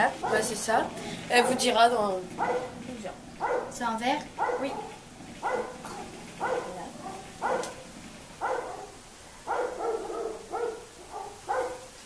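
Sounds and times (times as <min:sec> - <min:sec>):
dog barking: 0:00.2 - 0:00.6, 0:01.3 - 0:01.8, 0:02.4 - 0:02.8, 0:03.4 - 0:07.8, 0:08.4 - 0:12.0.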